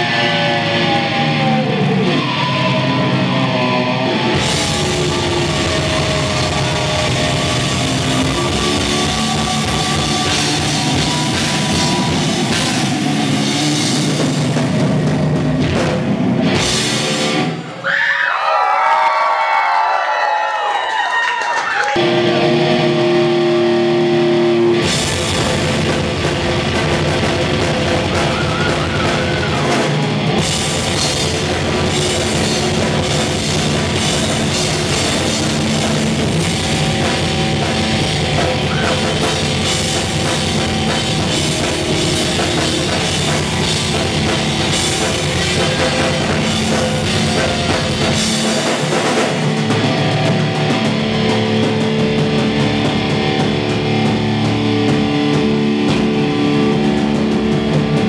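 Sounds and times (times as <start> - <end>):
drum kit: 0.0 - 17.8, 21.9 - 58.0
electric guitar chords: 0.0 - 17.8, 21.9 - 58.0
rock band playing live: 0.0 - 17.9, 21.9 - 58.0.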